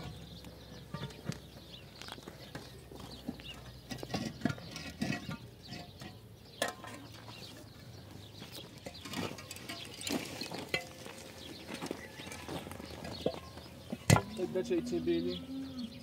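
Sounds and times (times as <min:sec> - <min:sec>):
concrete blocks knocking and scraping: 0:00.8 - 0:07.7, 0:08.4 - 0:14.5.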